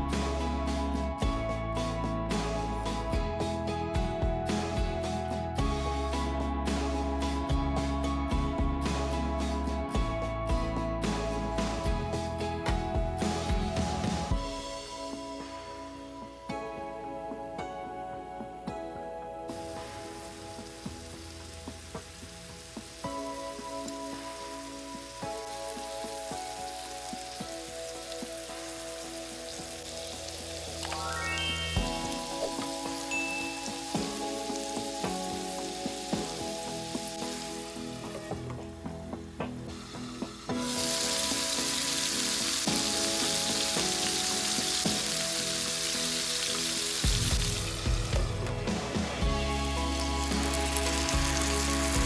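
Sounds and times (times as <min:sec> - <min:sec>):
meatballs sizzling in oil: 0:19.6 - 0:38.3, 0:39.2 - 0:52.0.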